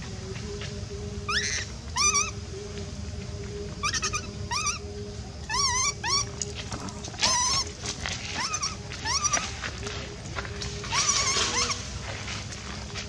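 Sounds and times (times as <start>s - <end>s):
infant monkey crying: 1.3s - 2.4s, 3.8s - 6.4s, 7.1s - 9.6s, 10.8s - 11.9s.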